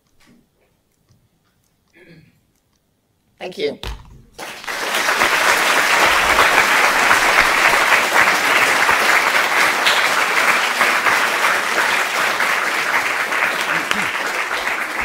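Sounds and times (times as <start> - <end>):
audience applauding: 4.4 - 15.0.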